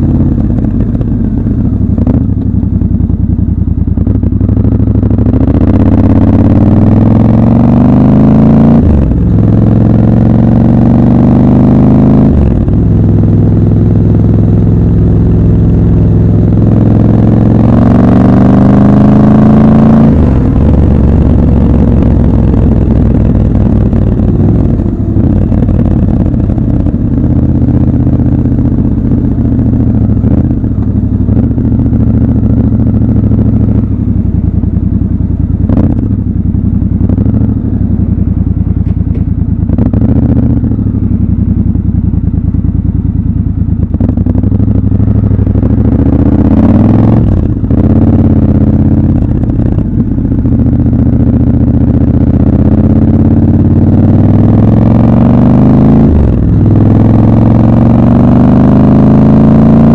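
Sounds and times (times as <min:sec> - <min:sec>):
motorcycle engine running: 0:00.0 - 0:59.9.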